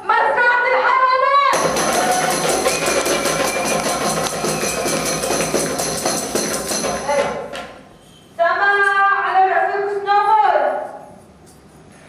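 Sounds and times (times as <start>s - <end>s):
jingling hand percussion: 1.6s - 7.5s, 10.7s - 12.0s.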